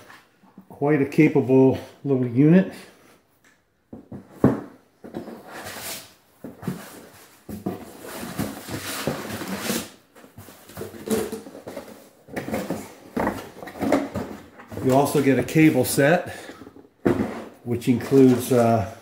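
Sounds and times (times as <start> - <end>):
cardboard scraping and rubbing: 5.1 - 14.2.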